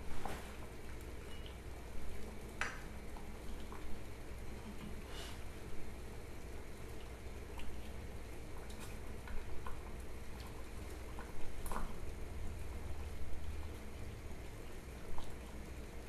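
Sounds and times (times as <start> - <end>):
low steady hum: 0.0 - 16.0
water bubbling in a saucepan: 0.0 - 16.0
small pops and ticks: 2.5 - 2.9.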